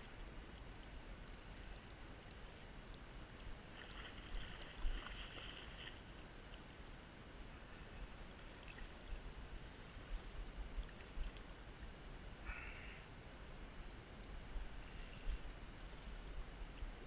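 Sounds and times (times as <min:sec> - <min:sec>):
creek water over gravel: 0:01.4 - 0:07.0, 0:07.8 - 0:12.9.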